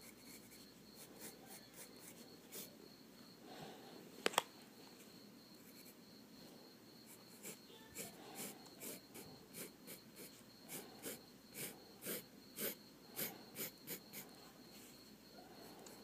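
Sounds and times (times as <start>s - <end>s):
pencil scratching on paper: 0.0s - 2.8s, 7.1s - 14.2s
faint high-pitched whine: 0.0s - 16.0s.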